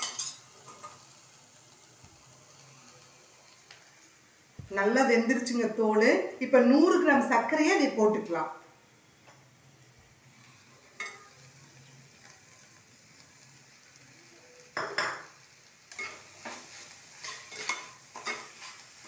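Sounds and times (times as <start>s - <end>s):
spoon stirring in a metal pan: 0.0s - 1.1s, 10.9s - 11.5s, 15.9s - 19.0s
faint sizzle: 0.0s - 19.0s.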